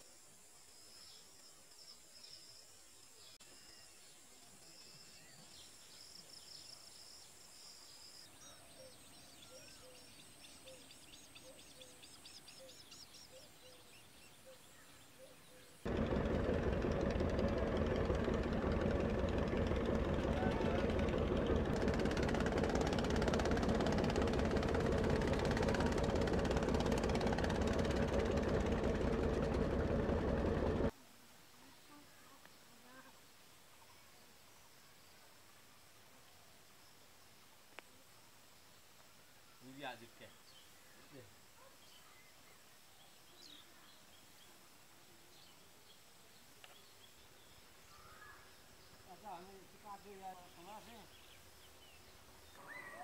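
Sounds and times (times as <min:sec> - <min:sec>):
boat engine running: 0:15.9 - 0:30.9
faint click: 0:37.7 - 0:37.9, 0:46.6 - 0:46.8
faint bird chirps: 0:45.2 - 0:49.4, 0:50.3 - 0:53.0.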